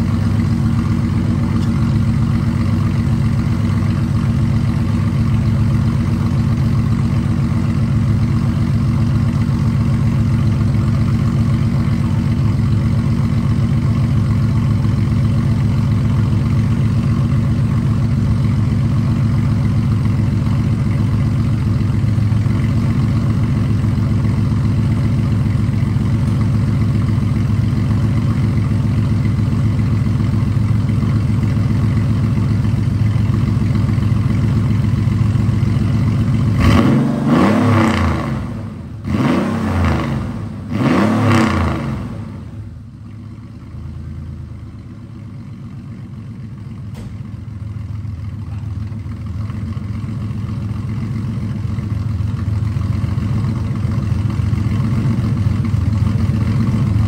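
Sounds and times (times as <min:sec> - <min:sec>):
car engine idling: 0:00.0 - 0:57.0
car engine revving: 0:36.4 - 0:42.6.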